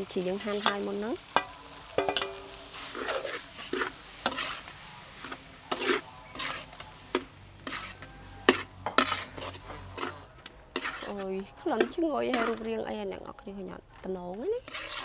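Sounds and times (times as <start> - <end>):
metal spatula scraping metal pan: 2.0 - 12.9, 14.6 - 15.0.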